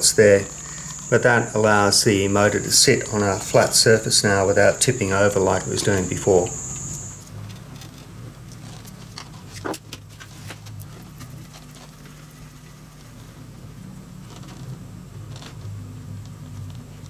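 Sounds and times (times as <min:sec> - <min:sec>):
steady low hum: 0:00.0 - 0:07.4.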